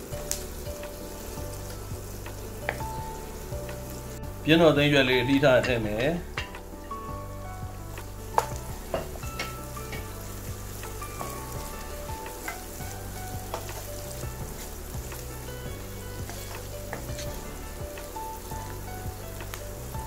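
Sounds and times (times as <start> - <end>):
onions sizzling in hot oil: 0.0 - 20.0
spatula scraping a pan: 5.4 - 7.1, 8.0 - 19.9.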